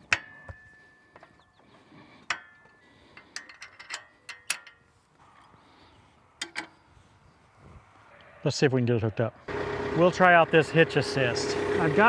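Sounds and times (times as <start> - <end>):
metal parts clinking: 2.2 - 5.0, 6.4 - 6.8.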